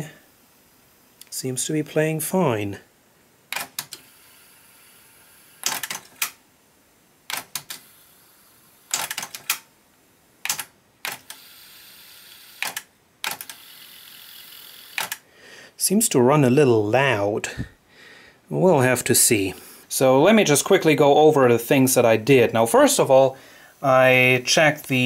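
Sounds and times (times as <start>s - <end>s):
tape mechanism whirring: 3.5s - 6.4s, 7.3s - 9.7s, 10.4s - 15.2s.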